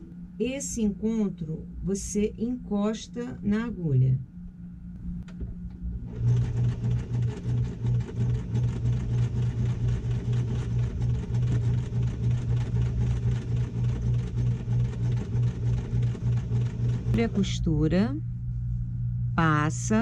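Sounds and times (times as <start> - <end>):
sewing machine stitching: 6.1 - 17.4.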